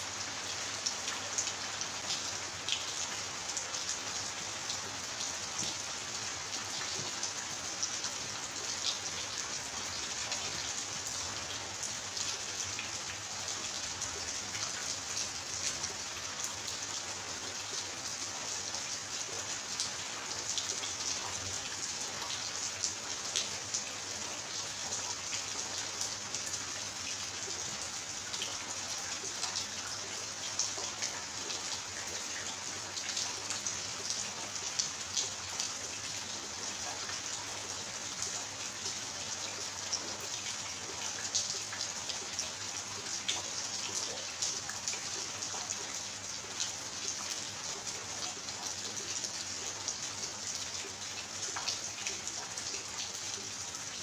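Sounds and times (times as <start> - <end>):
steady rain falling: 0.0 - 54.0.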